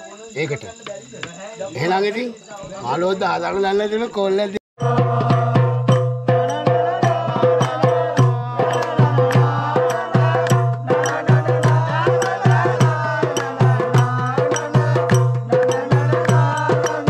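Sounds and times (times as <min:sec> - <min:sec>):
hand drumming on metal pots: 0:04.8 - 0:17.0.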